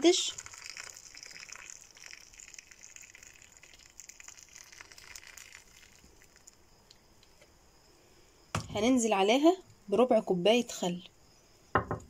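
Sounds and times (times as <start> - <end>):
fizzing crackle of hot water: 0.0 - 7.5.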